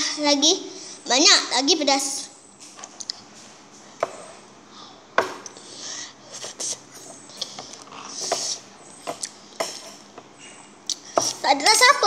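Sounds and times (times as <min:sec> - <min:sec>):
child chewing and breathing: 0:04.7 - 0:11.4.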